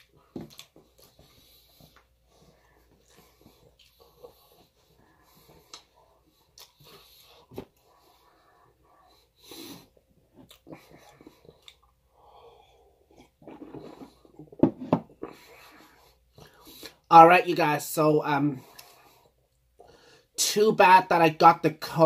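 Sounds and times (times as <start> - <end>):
person chewing: 0.0 - 7.7, 9.1 - 17.0.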